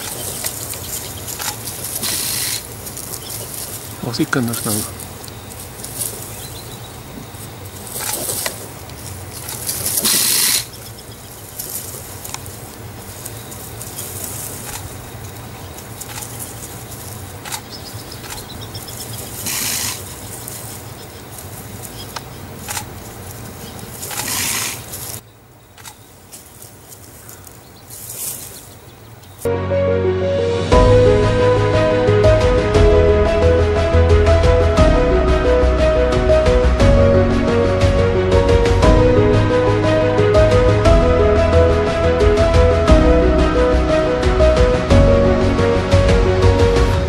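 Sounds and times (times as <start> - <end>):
porcupine quills rattling: 0.0 - 29.5.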